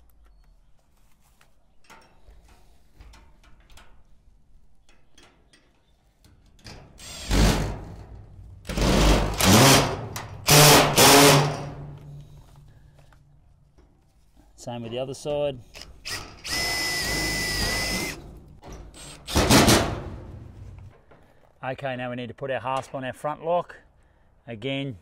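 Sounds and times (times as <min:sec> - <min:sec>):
cordless drill driving screws: 0:07.0 - 0:07.9, 0:08.7 - 0:11.7, 0:15.7 - 0:18.2, 0:19.0 - 0:19.7.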